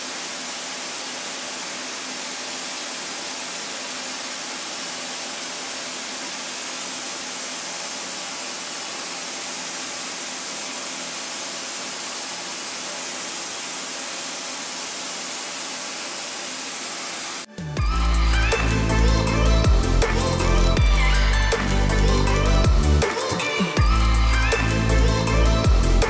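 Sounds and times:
milling machine hissing: 0.0 - 21.5.

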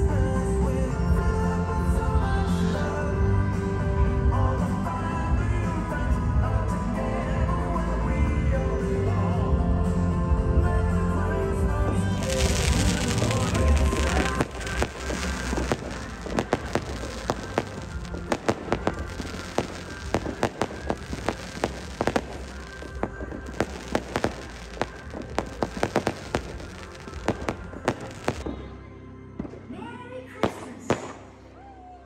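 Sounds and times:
crowd voices: 11.8 - 28.7
show music: 12.1 - 28.4.

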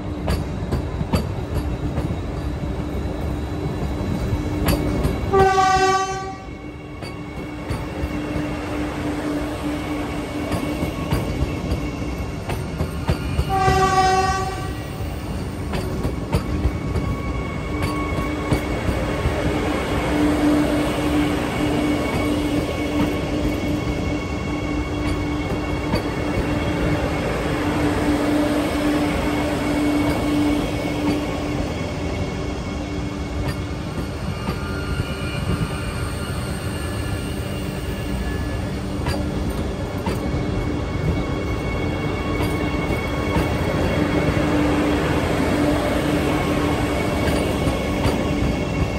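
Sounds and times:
train wheels rumbling on rails: 0.0 - 48.9
train horn blast: 5.3 - 6.5, 13.5 - 14.9.

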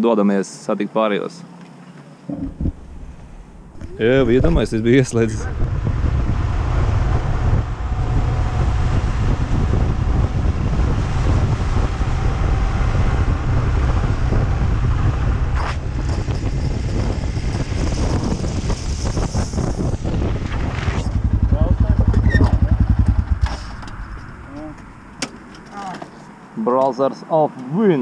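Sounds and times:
wind buffeting microphone: 2.3 - 25.6
motorcycle engine running: 5.4 - 25.2.

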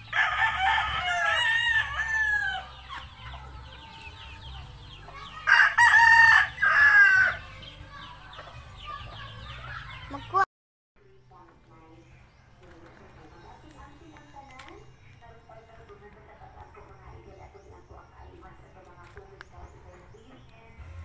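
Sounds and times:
rooster crowing: 0.1 - 2.8, 5.4 - 7.4.

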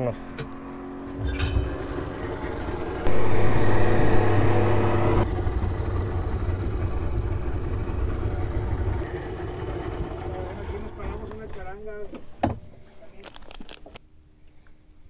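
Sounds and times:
boat motor running: 0.0 - 11.8.

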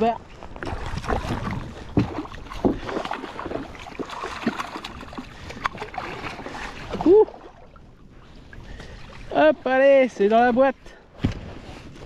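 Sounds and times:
water: 0.0 - 12.0
wind: 0.0 - 12.0
clicks and knocks on kayak: 11.2 - 12.0.

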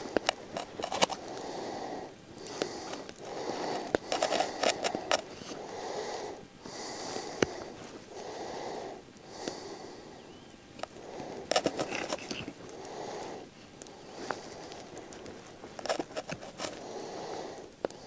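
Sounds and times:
knife scraping wood: 11.4 - 12.6, 14.2 - 16.8.

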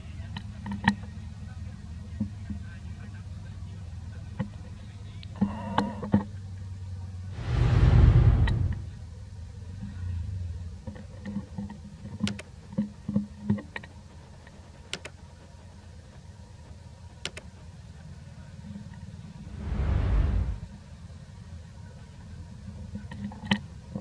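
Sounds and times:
steady low rumble: 7.3 - 9.3, 19.2 - 20.9.

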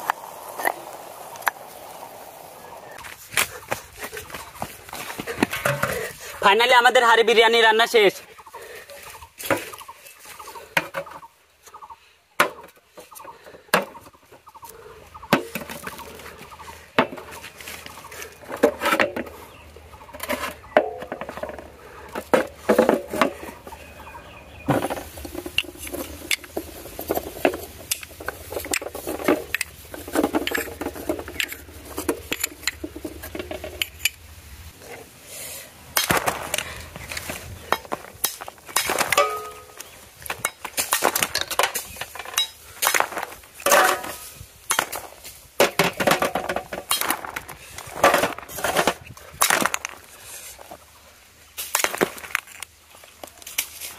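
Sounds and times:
clay pots knocking and clinking: 3.4 - 6.3, 15.3 - 17.6, 20.1 - 23.8, 24.6 - 34.2, 37.6 - 50.0
clay pots cracking open: 24.8 - 34.2, 35.9 - 50.1, 51.6 - 53.7.

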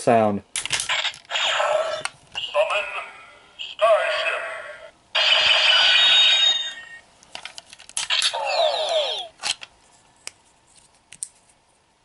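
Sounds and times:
toy electronic sound effect: 0.9 - 3.1, 3.8 - 7.0, 8.1 - 9.4.

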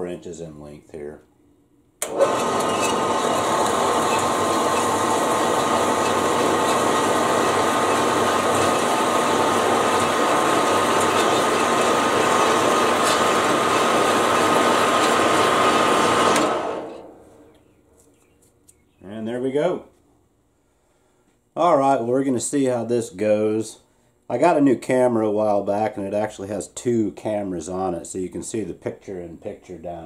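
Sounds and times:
band saw cutting plastic rod: 2.0 - 15.6.

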